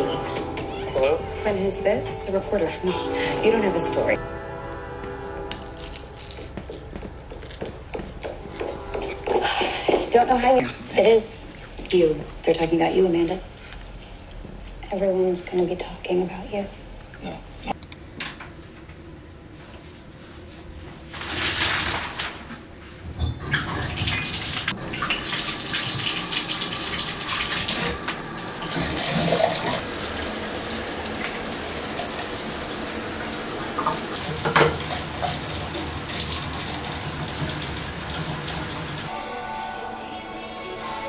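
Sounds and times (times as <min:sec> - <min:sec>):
shower water spraying on tile: 0:29.4 - 0:39.1.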